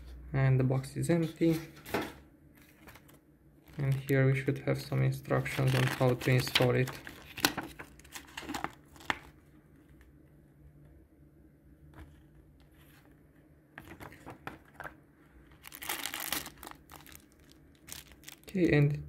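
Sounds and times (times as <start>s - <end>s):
paper rustling and crinkling: 1.4s - 4.6s, 5.3s - 9.4s, 13.8s - 18.5s.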